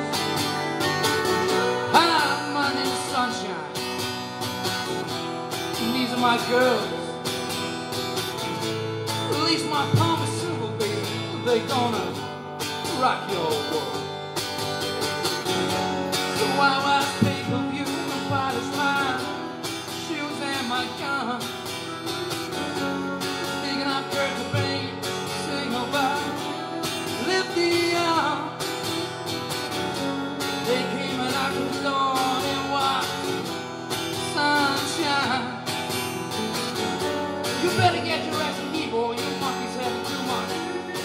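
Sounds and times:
electric lead guitar bending notes: 0.0s - 41.0s
guitar strumming chords: 0.0s - 41.0s.

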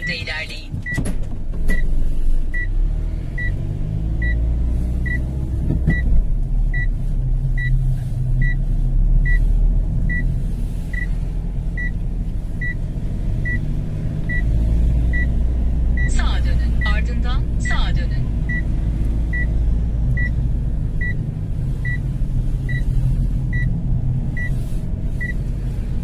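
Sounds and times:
electronic warning beep: 0.0s - 1.0s, 16.0s - 18.6s
engine and road rumble: 0.0s - 26.0s.

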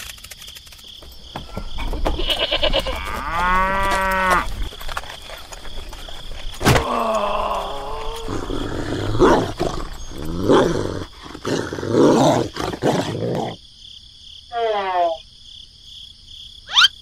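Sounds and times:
dog barking and growling: 7.8s - 13.6s.

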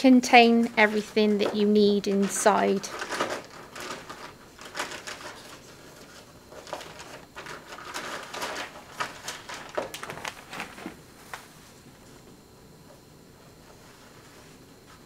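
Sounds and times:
plastic and paper crinkling: 0.8s - 11.6s.

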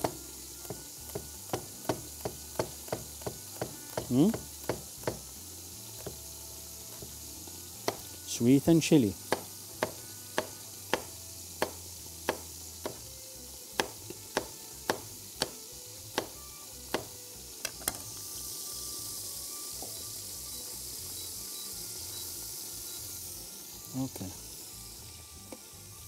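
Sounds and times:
knife chopping on wooden board: 0.0s - 5.3s, 7.8s - 8.2s, 9.2s - 13.1s, 13.7s - 17.2s
food sizzling in a pan: 0.0s - 26.0s.

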